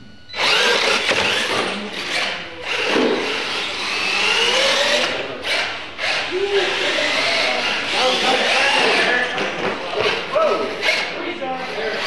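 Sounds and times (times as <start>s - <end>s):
rc truck motors whining: 0.2s - 12.0s.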